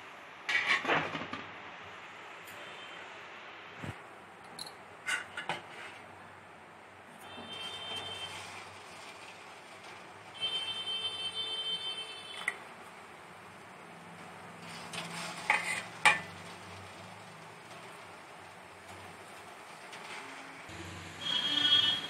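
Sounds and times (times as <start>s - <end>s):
steel ladle scraping a pot: 4.6s - 6.2s, 7.2s - 22.0s.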